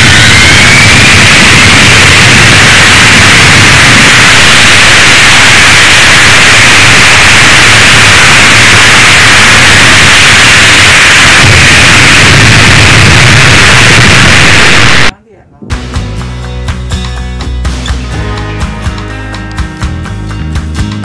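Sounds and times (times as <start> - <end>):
jet engine roar: 0.0 - 15.1.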